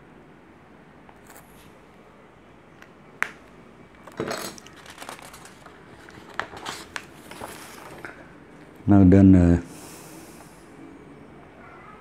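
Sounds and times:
paper rustling: 4.0s - 8.3s.

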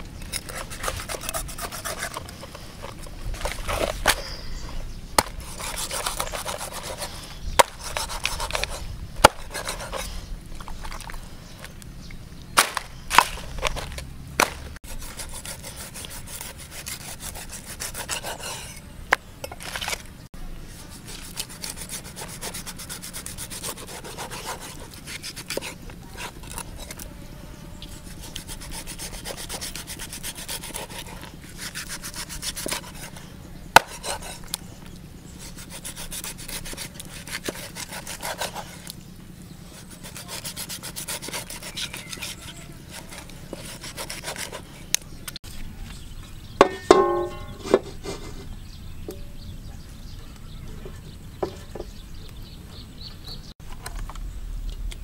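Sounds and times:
knife sawing through skin and flesh: 0.3s - 2.7s, 5.2s - 10.3s, 14.4s - 18.8s, 20.8s - 27.1s, 27.9s - 34.6s, 35.3s - 39.0s, 39.6s - 44.8s.

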